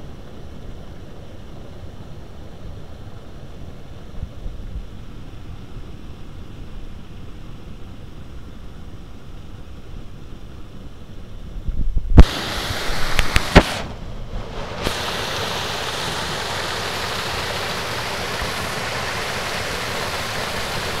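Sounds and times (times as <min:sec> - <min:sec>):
water rushing over dam: 0:12.2 - 0:21.0.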